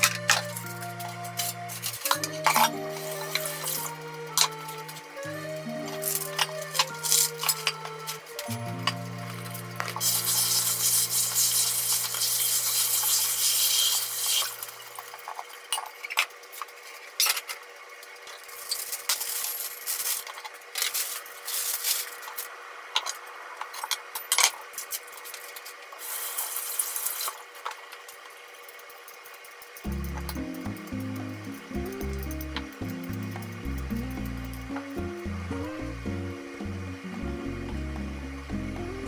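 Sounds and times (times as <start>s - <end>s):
steady rushing hiss: 6.9s - 14.9s
plastic bag crinkling: 18.5s - 22.4s.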